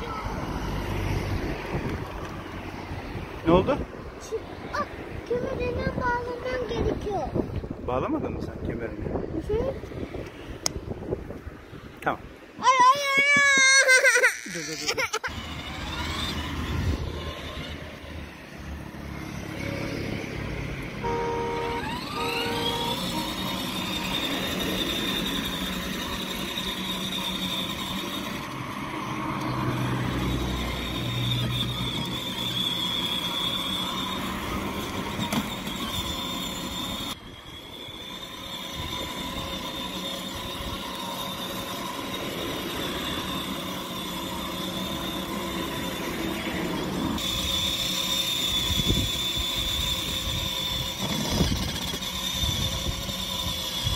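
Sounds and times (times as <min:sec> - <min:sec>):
wheels rolling on asphalt: 0:00.0 - 0:53.9
toy car electric motor whine: 0:12.6 - 0:53.9
short tones: 0:21.0 - 0:25.2.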